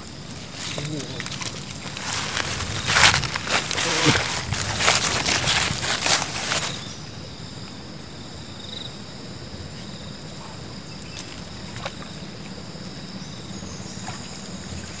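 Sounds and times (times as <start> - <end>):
rustle: 0.0 - 8.0
insect trill: 0.0 - 15.0
insects chorus: 0.0 - 15.0.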